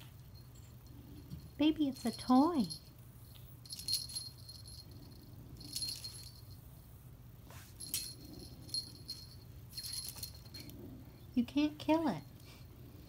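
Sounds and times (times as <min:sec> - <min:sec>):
small bell jingling: 0:00.0 - 0:06.9, 0:07.7 - 0:10.9.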